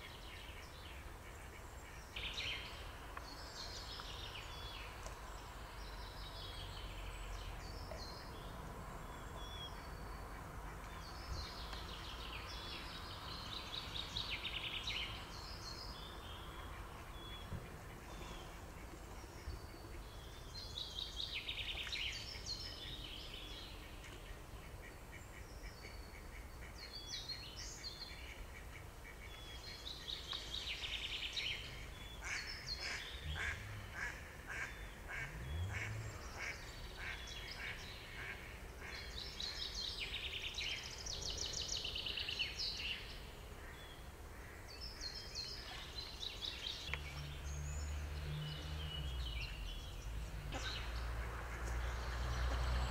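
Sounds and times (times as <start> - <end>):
small songbirds singing: 0.0 - 52.9
mallard quacking: 32.2 - 38.4.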